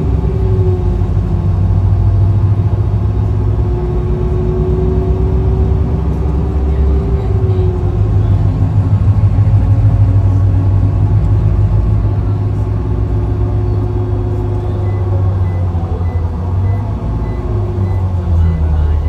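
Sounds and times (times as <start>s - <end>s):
vehicle engine and road noise: 0.0s - 19.0s
faint high-pitched beeps: 14.5s - 19.0s.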